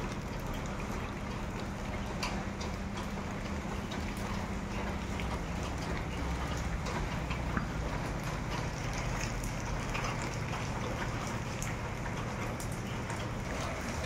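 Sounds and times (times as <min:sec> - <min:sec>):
drops ticking on hard surfaces: 0:00.0 - 0:13.4
heavy rain pouring: 0:00.0 - 0:14.0.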